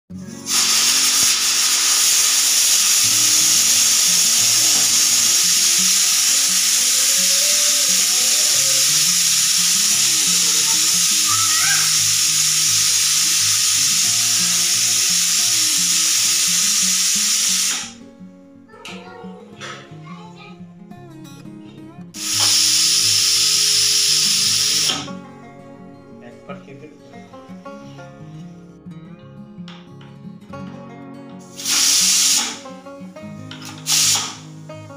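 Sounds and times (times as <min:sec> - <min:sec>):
pressure cooker steam hiss: 0:00.1 - 0:18.0, 0:22.2 - 0:25.2, 0:31.4 - 0:34.9.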